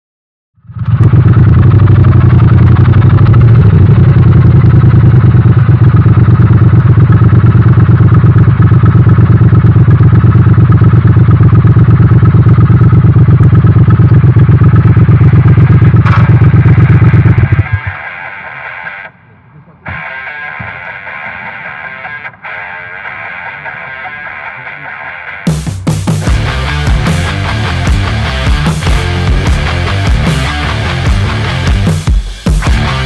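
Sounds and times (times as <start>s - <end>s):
motorcycle engine running: 0.6s - 19.3s, 25.5s - 33.0s.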